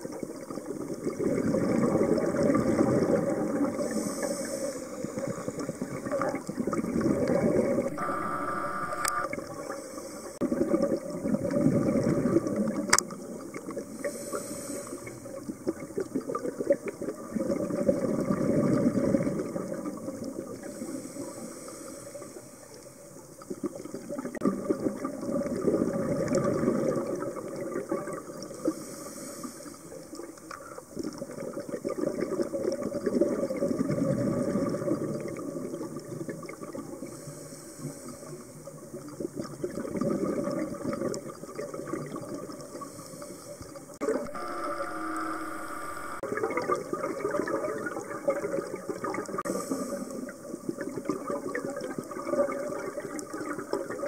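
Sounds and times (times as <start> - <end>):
bubbling gurgle of exhaled air: 0.0 - 8.6, 9.3 - 45.3, 46.2 - 54.0
regulator hiss on inhale: 3.8 - 5.9, 7.9 - 10.4, 13.9 - 15.4, 20.6 - 23.0, 28.6 - 30.0, 37.0 - 38.7, 42.7 - 46.2, 49.4 - 50.4.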